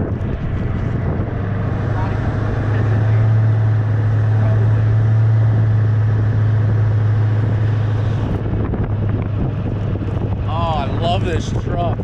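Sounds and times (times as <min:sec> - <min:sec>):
diesel truck engine droning: 0:00.0 - 0:12.0.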